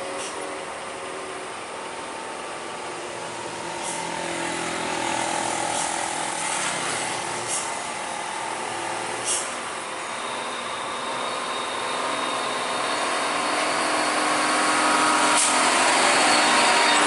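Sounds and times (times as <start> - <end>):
truck diesel engine under load: 0.0 - 17.0
brief hiss: 9.2 - 9.6.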